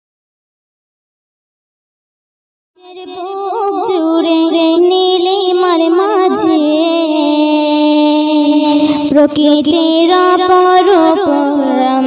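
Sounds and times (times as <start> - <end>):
girl singing solo: 2.8 - 12.0.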